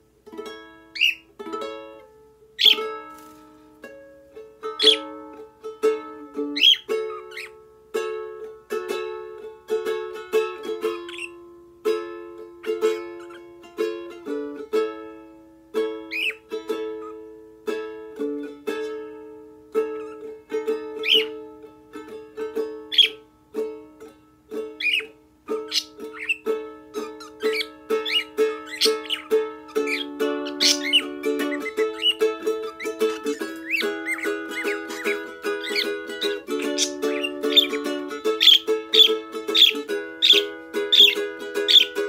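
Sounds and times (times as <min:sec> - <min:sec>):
ukulele chord pattern: 0:00.0 - 0:42.0
pet bird chirps: 0:00.9 - 0:01.3, 0:02.6 - 0:02.9, 0:04.8 - 0:05.1, 0:06.5 - 0:07.6, 0:10.9 - 0:11.4, 0:12.6 - 0:13.5, 0:16.1 - 0:16.4, 0:21.0 - 0:21.3, 0:22.9 - 0:23.2, 0:24.8 - 0:42.0.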